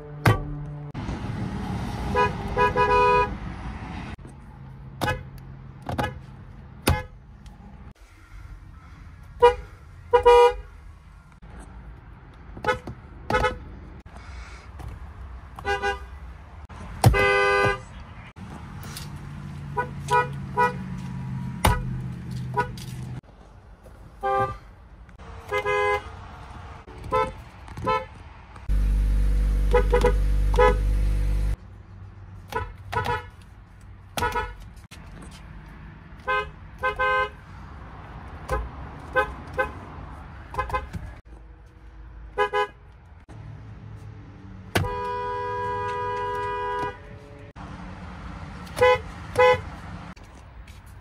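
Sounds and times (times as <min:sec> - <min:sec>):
car horns tooting: 0:02.1 - 0:03.5, 0:09.4 - 0:10.7, 0:12.6 - 0:13.7, 0:15.6 - 0:16.2, 0:17.0 - 0:18.0, 0:19.7 - 0:20.9, 0:24.2 - 0:24.7, 0:25.4 - 0:26.2, 0:26.9 - 0:28.2, 0:29.5 - 0:31.6, 0:32.5 - 0:33.4, 0:34.2 - 0:34.6, 0:36.2 - 0:37.4, 0:40.5 - 0:41.2, 0:44.7 - 0:47.6, 0:48.7 - 0:49.7.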